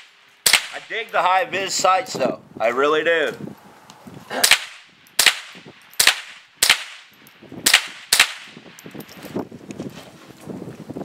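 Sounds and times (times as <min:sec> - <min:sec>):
rifle shots: 0:00.0 - 0:01.1, 0:04.4 - 0:08.7.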